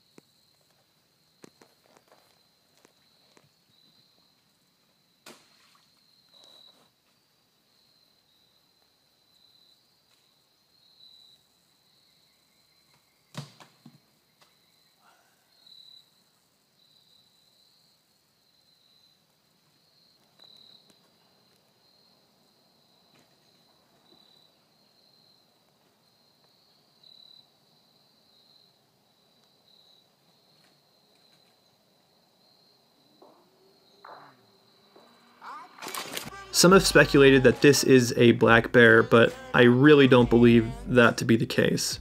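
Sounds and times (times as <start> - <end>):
high insect trill: 7.6 - 13.3, 14.0 - 19.2, 19.8 - 40.2
sharp clicks or snaps: 35.8 - 36.4.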